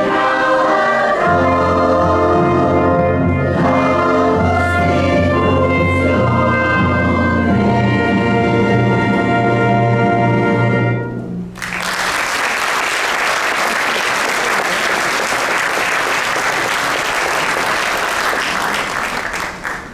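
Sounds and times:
choir and ensemble chord: 0.0 - 11.4
audience applause: 11.6 - 19.9.

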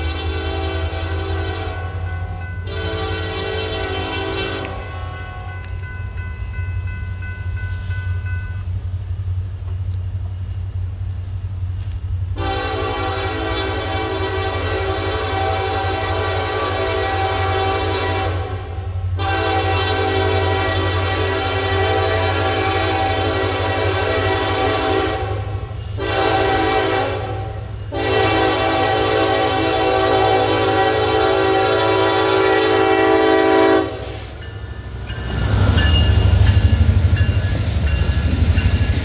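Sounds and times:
locomotive air horn blasts: 0.0 - 5.4, 12.4 - 34.4
train rumbling: 0.0 - 39.0.

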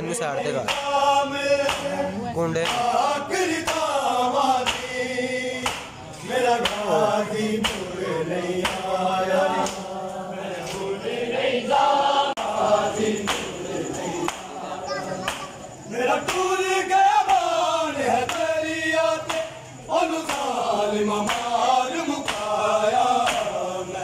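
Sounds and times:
men chanting a lament: 0.0 - 24.0
hands slapping bare chests: 1.6 - 1.9, 4.6 - 4.9, 5.6 - 6.0, 6.6 - 6.8, 7.6 - 7.9, 22.2 - 22.6, 23.2 - 23.6.

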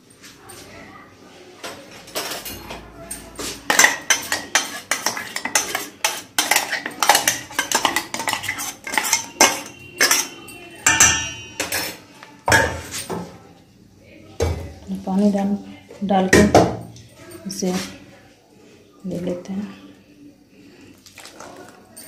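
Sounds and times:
metal scraping: 2.1 - 13.1
metal jar knocking on steel bowl: 3.7 - 12.9.

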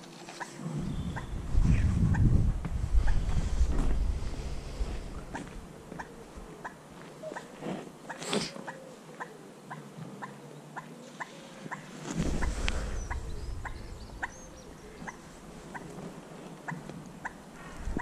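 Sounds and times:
low rumble: 0.6 - 5.8, 12.2 - 16.3.

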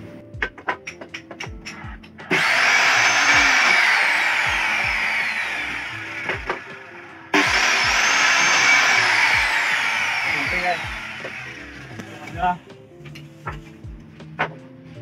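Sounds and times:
miter saw cutting wood: 2.3 - 12.1.

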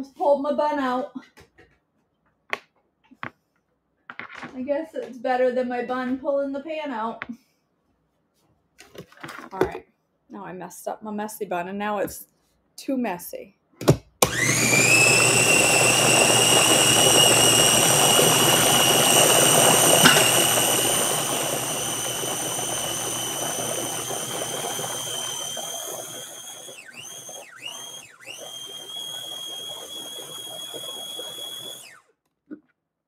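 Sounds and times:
mini chopper motor whining: 14.3 - 32.0.

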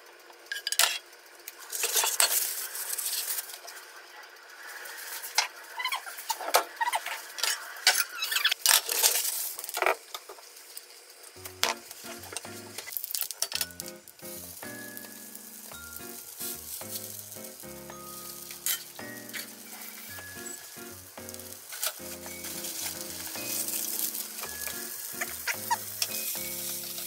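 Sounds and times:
oil sizzling in a frying pan: 0.6 - 27.0.

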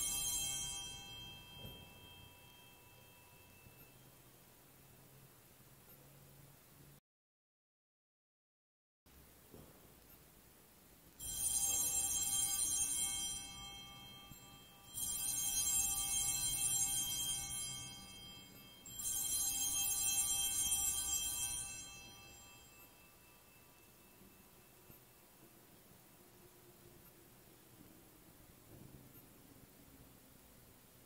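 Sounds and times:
altar bells ringing: 0.0 - 5.0, 11.2 - 26.4.

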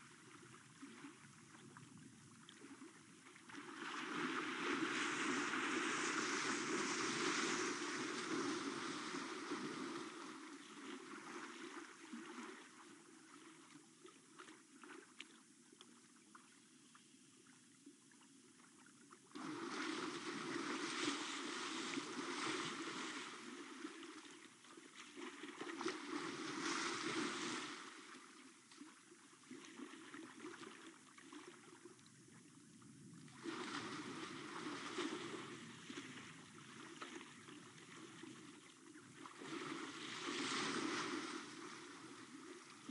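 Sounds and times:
elephant splashing in water: 19.4 - 24.0, 39.4 - 42.9.

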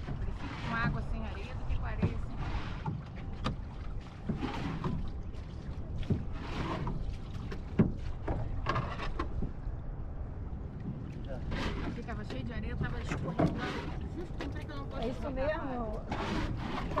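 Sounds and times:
knocks against boat: 0.0 - 3.6, 6.0 - 9.6
water lapping against boat hull: 0.0 - 17.0.

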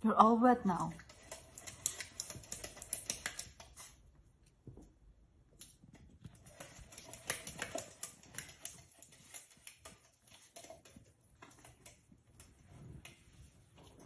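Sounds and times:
puppy lapping water: 0.8 - 4.1, 6.2 - 12.5.

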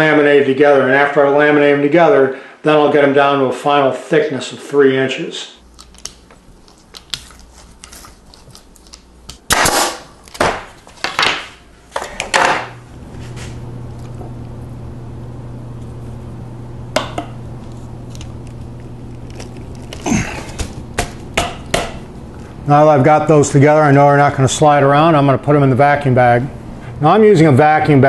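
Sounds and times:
steady low hum: 5.6 - 28.0.

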